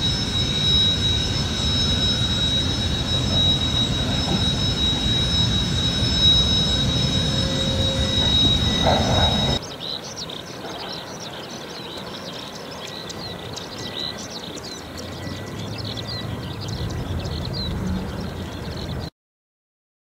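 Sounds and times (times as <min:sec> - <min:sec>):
low rumble: 0:00.0 - 0:09.6
loud high-pitched whine: 0:00.0 - 0:09.8, 0:12.0 - 0:19.1
birds chirping: 0:00.0 - 0:19.1.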